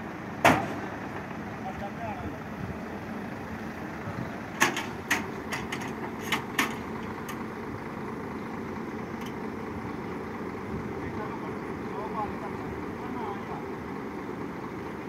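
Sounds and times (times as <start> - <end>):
truck engine running: 0.0 - 15.0.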